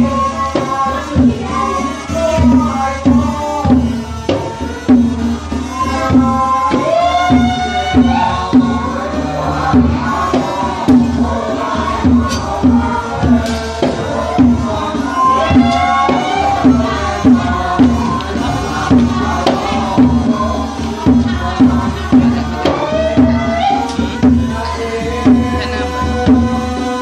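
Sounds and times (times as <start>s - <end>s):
hand drums beating: 0.0s - 27.0s.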